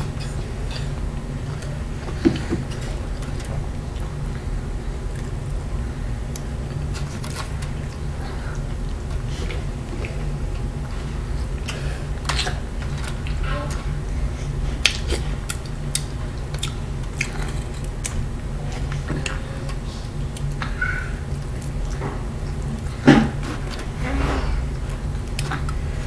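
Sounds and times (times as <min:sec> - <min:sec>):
steady low hum: 0:00.0 - 0:26.0.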